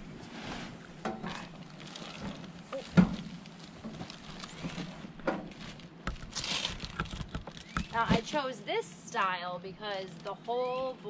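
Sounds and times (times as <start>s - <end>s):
plastic wrapping rustling: 1.3s - 8.3s.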